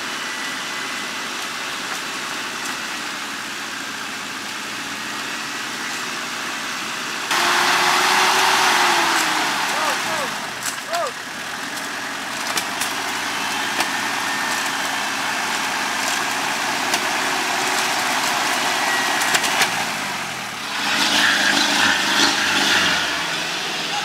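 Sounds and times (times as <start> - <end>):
off-road vehicle engine running: 0.0 - 24.0.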